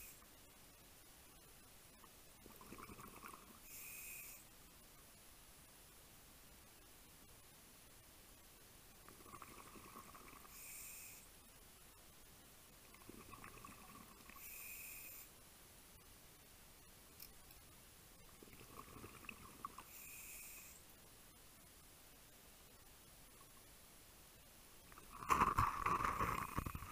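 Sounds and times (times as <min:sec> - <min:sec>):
regulator bubbling gurgle: 0:02.4 - 0:03.5, 0:09.1 - 0:10.5, 0:12.9 - 0:14.4, 0:18.4 - 0:19.8.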